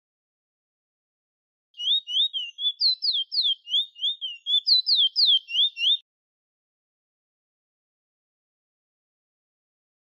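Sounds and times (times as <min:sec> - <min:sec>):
finch singing whistled notes: 0:01.8 - 0:06.0.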